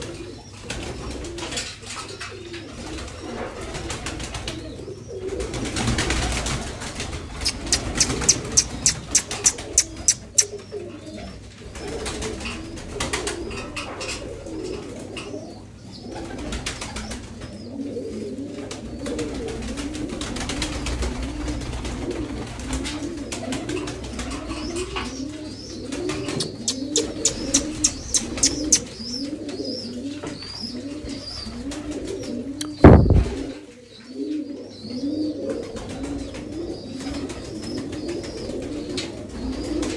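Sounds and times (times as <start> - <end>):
pigeons cooing: 0.0 - 39.9
wings flapping: 5.4 - 10.6, 19.2 - 24.6, 25.9 - 28.9, 31.5 - 33.5
loud bump: 32.8 - 33.4.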